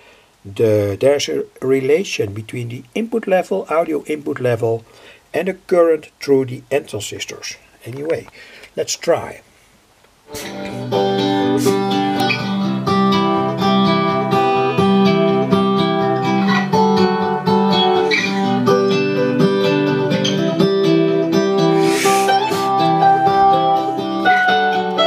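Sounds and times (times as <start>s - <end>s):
acoustic guitar music: 10.3s - 25.0s.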